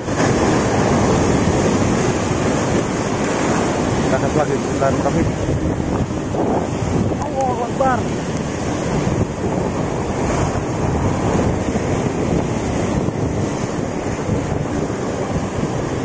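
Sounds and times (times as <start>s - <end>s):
sea surf washing ashore: 0.0s - 16.0s
wind buffeting the microphone: 0.0s - 16.0s.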